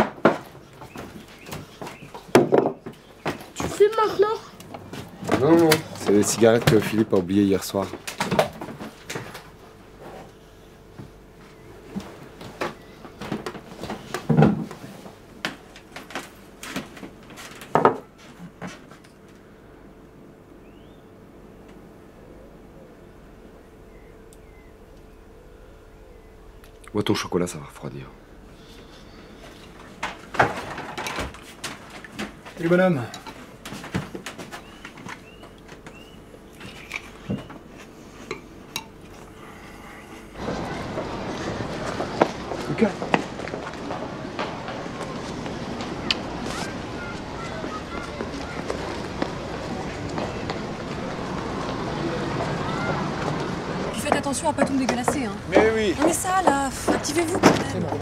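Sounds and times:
bird chirping: 0:00.6 - 0:03.5, 0:20.6 - 0:21.1, 0:22.2 - 0:27.0, 0:34.5 - 0:37.6.

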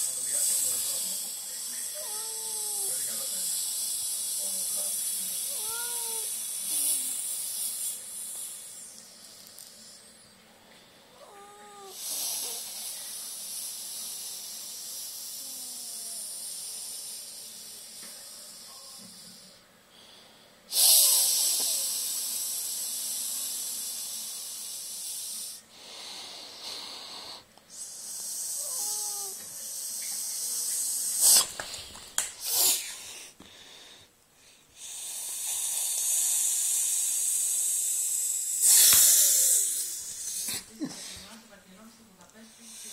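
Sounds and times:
person hissing like a snake: 0:00.0 - 0:08.9, 0:11.3 - 0:19.4, 0:20.7 - 0:31.8, 0:32.4 - 0:33.4, 0:34.8 - 0:41.3
cat cry: 0:02.0 - 0:03.1, 0:05.5 - 0:06.4, 0:11.2 - 0:12.1, 0:28.6 - 0:29.4.

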